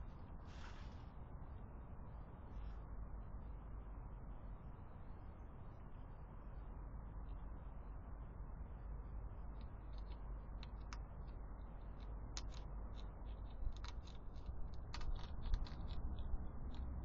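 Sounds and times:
hedgehogs crunching dry food: 0:09.5 - 0:17.0.

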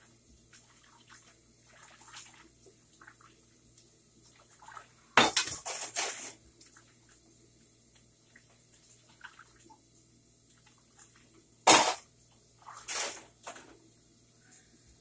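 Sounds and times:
dishes clattering in sink water: 0:05.1 - 0:06.4.

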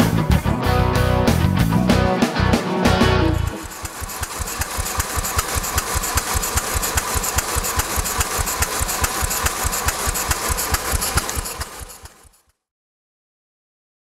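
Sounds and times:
steam engine exhaust chuffing: 0:03.0 - 0:12.5.

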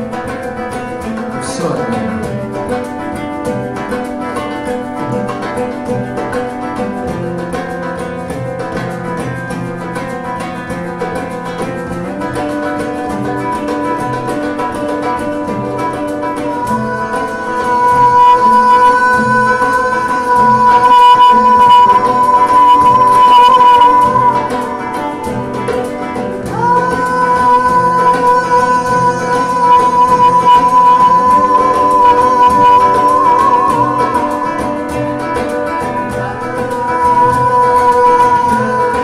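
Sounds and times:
acoustic guitar strumming: 0:00.0 - 0:39.0
man singing: 0:01.2 - 0:02.8, 0:16.4 - 0:24.4, 0:26.5 - 0:39.0.

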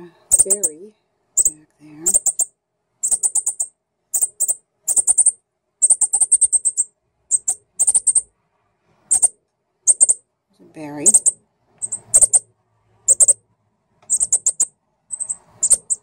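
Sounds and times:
young bird chip calls: 0:00.3 - 0:00.8, 0:01.4 - 0:08.3, 0:09.1 - 0:09.3, 0:09.9 - 0:10.2, 0:11.0 - 0:12.4, 0:13.1 - 0:13.4, 0:14.1 - 0:16.0.

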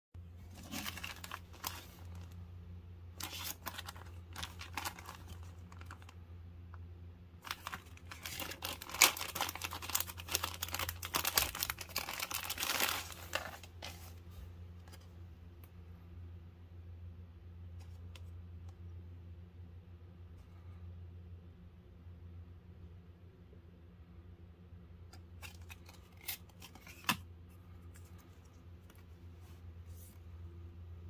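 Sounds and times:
low steady hum: 0:00.2 - 0:31.0
plastic bag crinkling: 0:00.5 - 0:02.4, 0:03.2 - 0:06.2, 0:07.4 - 0:14.2.

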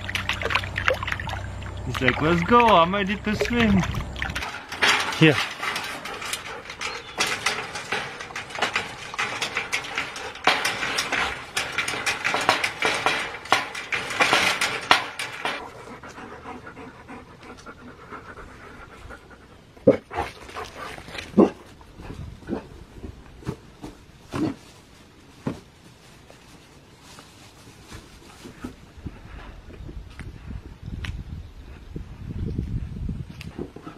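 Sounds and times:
thumps: 0:00.0 - 0:15.7
dogs panting hard: 0:05.5 - 0:11.4, 0:14.6 - 0:21.1.

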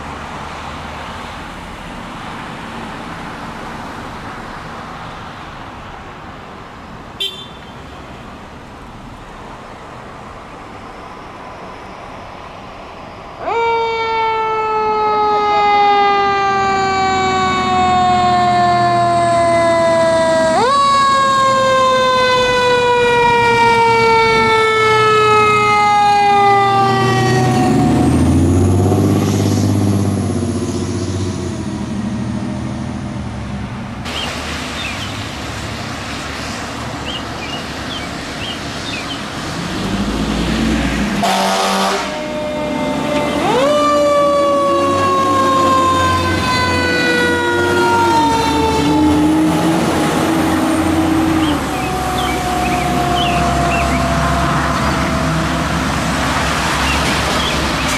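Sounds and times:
light road traffic: 0:00.0 - 0:57.9
fire truck air horn blasts: 0:07.2 - 0:07.8, 0:41.2 - 0:49.2, 0:50.7 - 0:55.8
siren sweeping up and down: 0:13.4 - 0:31.0, 0:37.0 - 0:57.9
truck engine rumble: 0:14.3 - 0:57.9.

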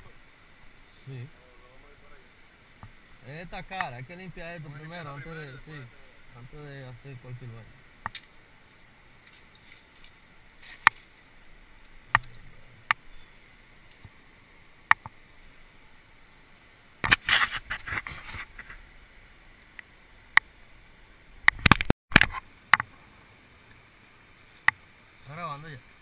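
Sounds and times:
rustling and scraping: 0:08.1 - 0:12.6, 0:17.0 - 0:18.9.

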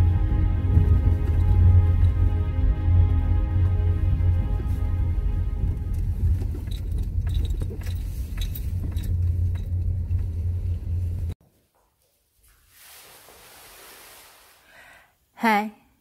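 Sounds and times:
car rumbling on rough road: 0:00.0 - 0:11.4.

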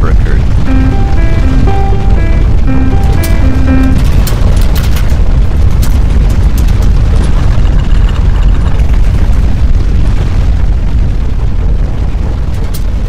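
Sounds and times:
rattling cracks and clatter: 0:04.2 - 0:09.6, 0:12.4 - 0:13.0
deep earthquake rumble: 0:04.2 - 0:13.0.

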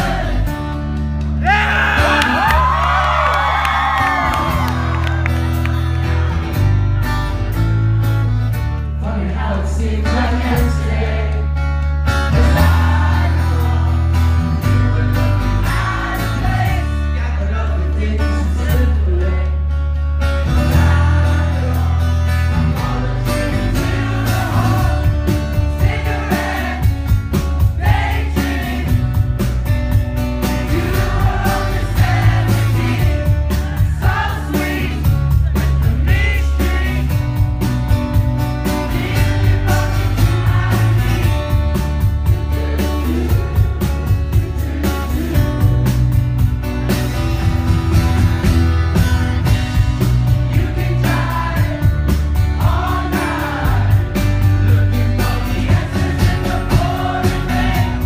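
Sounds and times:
bass notes: 0:00.0 - 0:58.0
man singing: 0:09.0 - 0:11.3, 0:12.2 - 0:19.7, 0:30.6 - 0:37.3.

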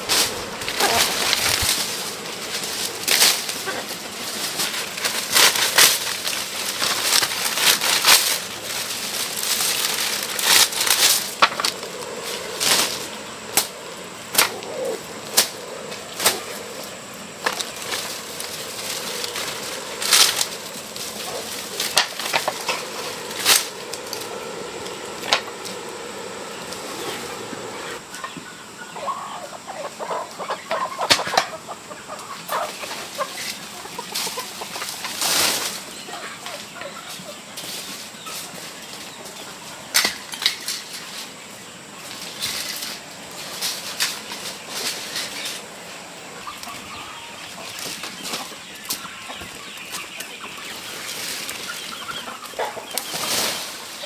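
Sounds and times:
chicken wing flaps: 0:00.0 - 0:03.7
chickens clucking: 0:00.0 - 0:54.0.

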